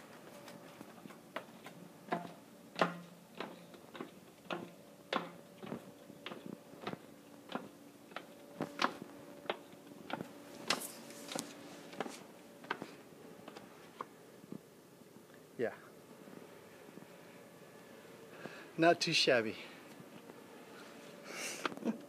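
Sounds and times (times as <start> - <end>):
footsteps on stone stairs: 0.0 - 14.1
faint steady hum: 0.0 - 22.0.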